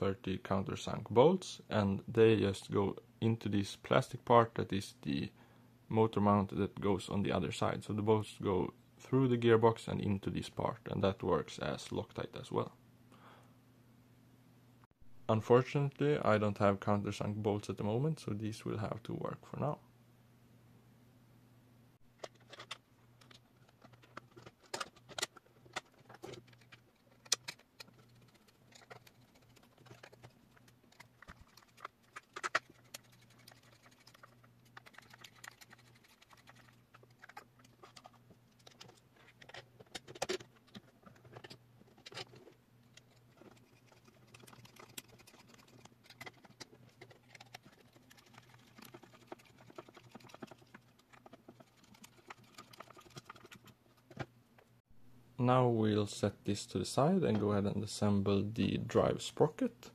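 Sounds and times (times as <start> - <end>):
faint low hum: 0.0 - 59.9
bolts and plastic parts clicking: 22.2 - 54.7.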